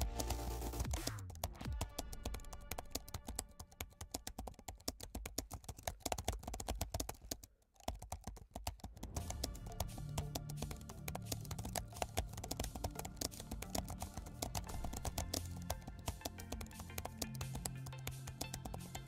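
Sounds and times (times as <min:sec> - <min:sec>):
background music with held tones: 0:00.0 - 0:04.3, 0:09.0 - 0:19.0
keyboard typing clicks: 0:00.0 - 0:19.0.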